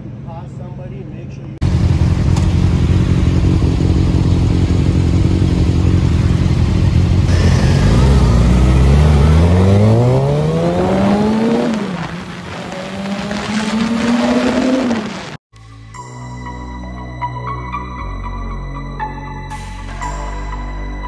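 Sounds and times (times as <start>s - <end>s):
motorcycle engines idling: 1.6s - 9.4s
motorcycle accelerating away: 1.6s - 15.4s.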